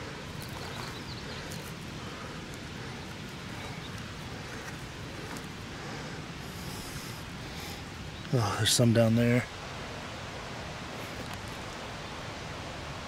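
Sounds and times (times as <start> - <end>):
rustling of pine needles and twigs: 0.0 - 5.8.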